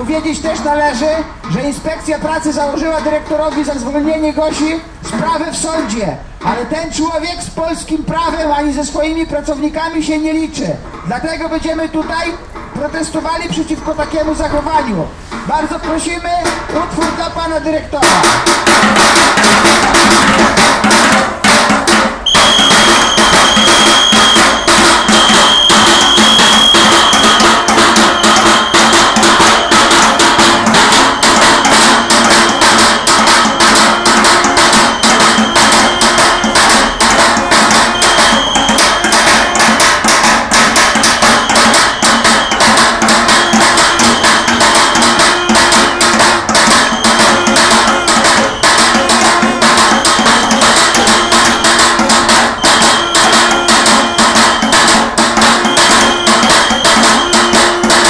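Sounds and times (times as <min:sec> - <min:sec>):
drumming with sticks on barrels: 0:00.0 - 0:58.0
high steady tone: 0:22.2 - 0:58.0.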